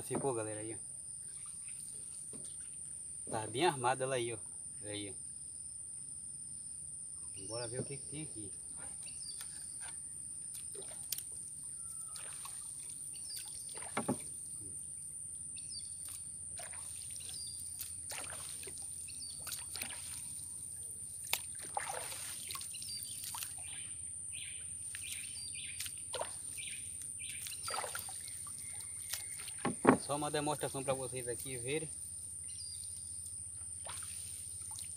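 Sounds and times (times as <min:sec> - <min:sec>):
high insect drone: 0:00.0 - 0:34.9
bird chirps: 0:07.2 - 0:10.8, 0:11.6 - 0:14.0, 0:15.5 - 0:16.2, 0:16.9 - 0:17.9, 0:19.0 - 0:20.6, 0:22.5 - 0:33.3
paddle splashing and dripping: 0:09.3 - 0:15.1, 0:15.9 - 0:30.4, 0:31.4 - 0:34.9
sharp knocks: 0:14.0 - 0:14.3, 0:29.6 - 0:30.2.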